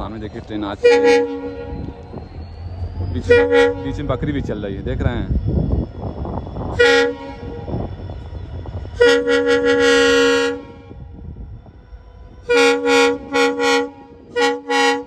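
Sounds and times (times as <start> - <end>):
locomotive horn blasts: 0.8 - 1.9, 3.3 - 4.0, 6.7 - 7.8, 8.9 - 11.0, 12.4 - 15.0.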